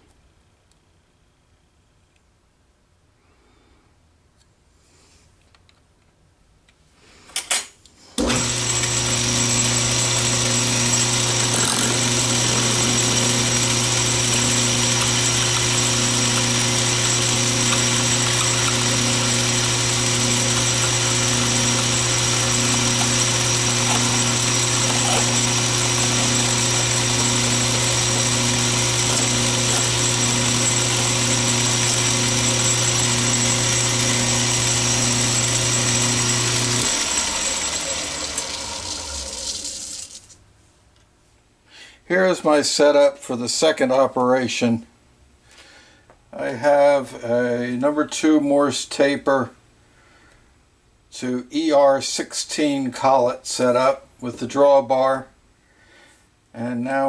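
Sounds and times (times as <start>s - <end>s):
lathe humming and whining: 8.2s - 40.0s.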